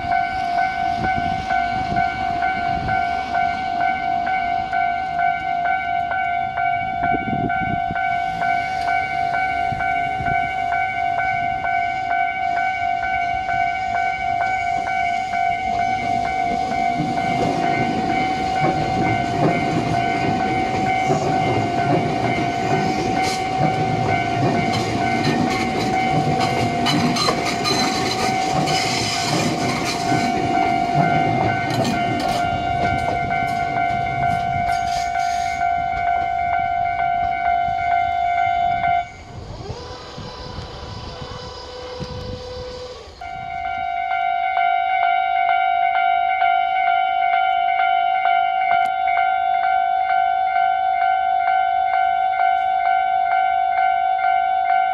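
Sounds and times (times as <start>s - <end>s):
level crossing bell ringing: 0.0s - 39.1s, 43.3s - 54.9s
train wheels rumbling: 0.0s - 53.3s
wheels clacking over rail joints: 13.7s - 38.1s.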